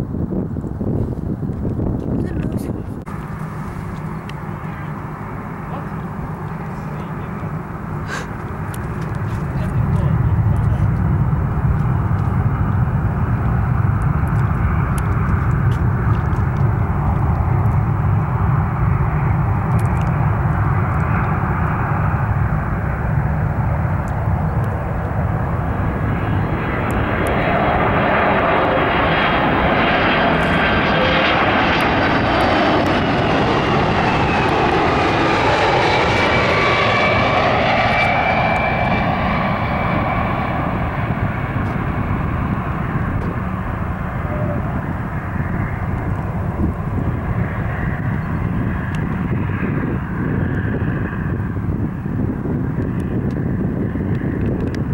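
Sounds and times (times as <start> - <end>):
jet plane low rumble: 0.0 - 54.9
loud jet whine: 2.4 - 54.9.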